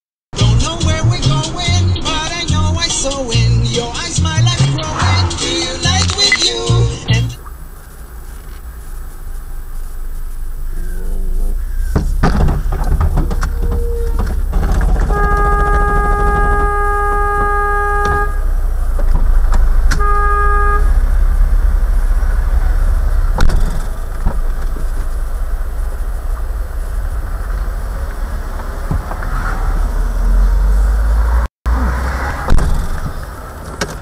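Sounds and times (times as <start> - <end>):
engine and road noise: 0.3 - 34.0
car horn blasts: 13.2 - 23.2.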